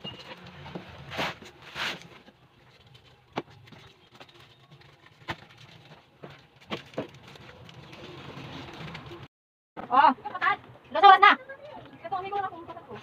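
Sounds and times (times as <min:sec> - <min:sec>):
items tapping and knocking: 0:00.0 - 0:08.2
cardboard and packaging rustling: 0:00.0 - 0:09.3.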